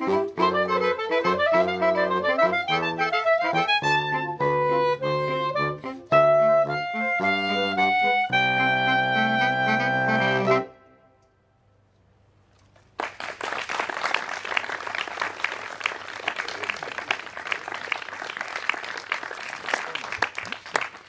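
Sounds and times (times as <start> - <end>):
audience applauding: 12.9 - 21.0.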